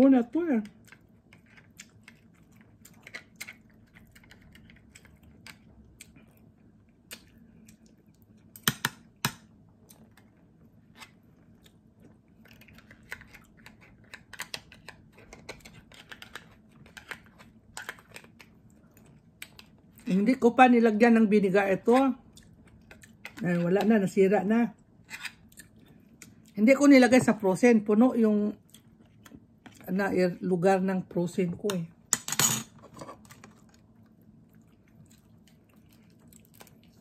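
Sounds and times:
chewing: 0.7s - 8.6s, 22.2s - 23.4s, 28.6s - 29.9s, 33.4s - 37.0s.

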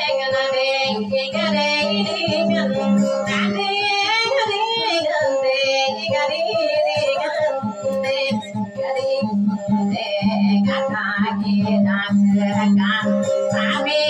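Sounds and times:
plucked string accompaniment: 0.0s - 14.0s
woman singing through microphone: 0.0s - 14.0s.

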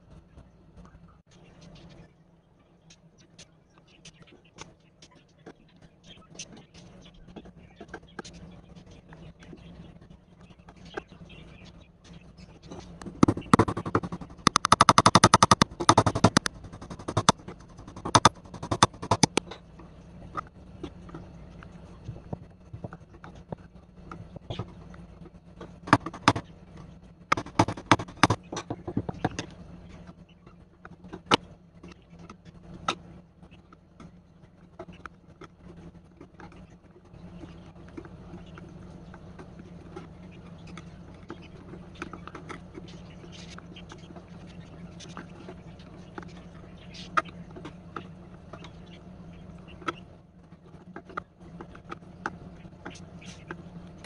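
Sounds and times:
steady low hum: 0.0s - 54.0s
screwdriver clicking and scraping: 13.0s - 19.4s.

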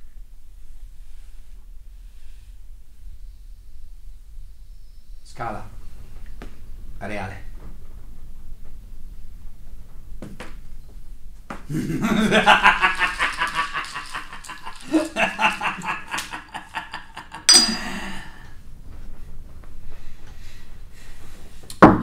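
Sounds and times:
person laughing: 11.7s - 18.4s.

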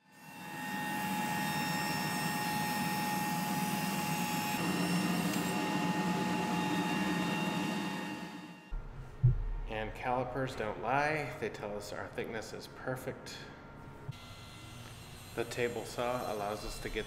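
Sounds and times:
thickness planer running: 0.2s - 8.7s.

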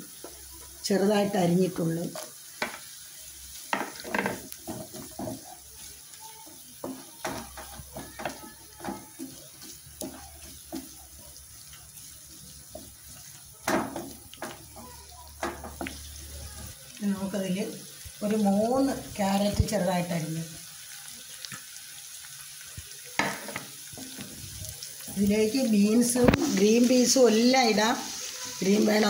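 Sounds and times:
oil sizzling: 0.0s - 29.0s
wooden spatula scraping frying pan: 3.5s - 16.8s.

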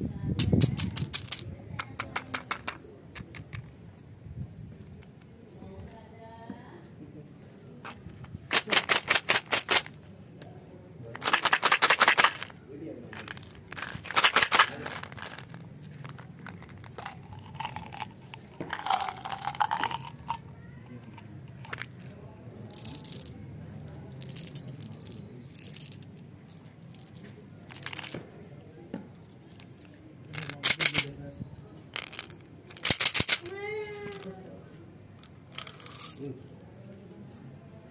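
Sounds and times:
gum pellets rattling in plastic bottle: 0.4s - 2.7s, 8.5s - 9.9s, 11.2s - 20.5s, 21.5s - 23.4s, 24.1s - 28.2s, 30.4s - 31.1s, 32.0s - 33.5s, 35.2s - 36.5s.

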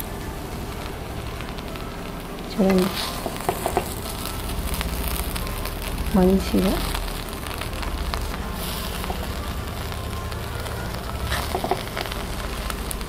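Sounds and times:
faint crackle: 0.0s - 13.0s
steady low hum: 0.0s - 13.0s.

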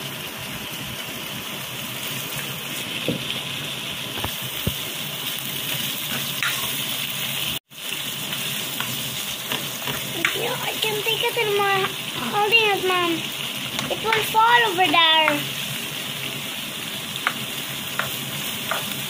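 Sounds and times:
food sizzling in a wok: 0.0s - 19.0s
spatula knocking against pan: 18.0s - 19.0s.

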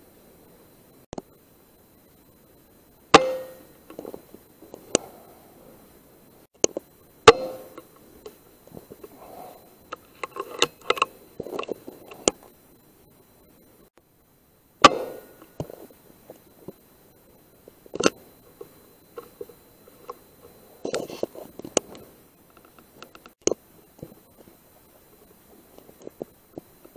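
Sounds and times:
sharp knock: 3.2s - 3.6s, 14.8s - 15.4s
air rifle shot crack: 14.8s - 15.4s.

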